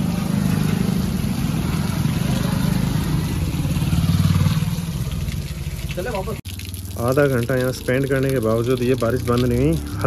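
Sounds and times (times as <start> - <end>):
vehicle engine running: 0.0 - 6.2
steady rain: 0.0 - 10.0.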